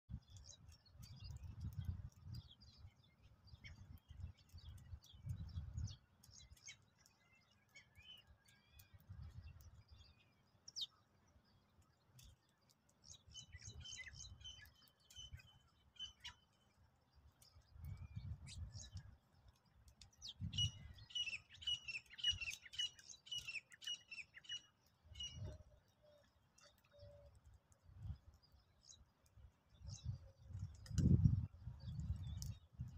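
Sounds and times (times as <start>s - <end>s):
sparrows chirping: 0.2s - 32.9s.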